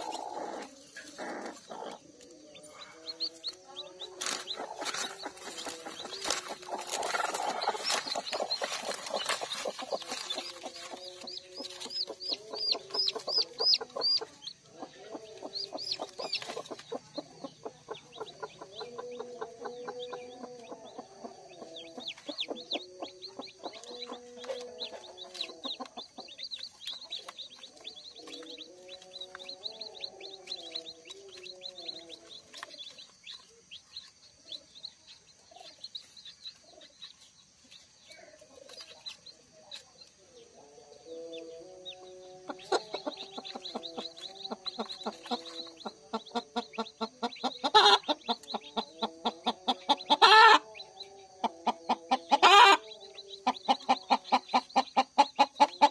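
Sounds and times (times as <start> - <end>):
chicks peeping: 0.0 - 55.9
hen clucking low: 42.4 - 50.8, 51.4 - 55.9.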